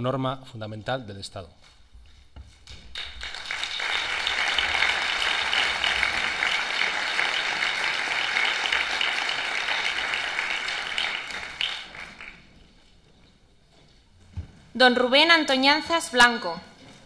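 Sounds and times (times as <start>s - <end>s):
crowd applauding: 2.6s - 12.8s.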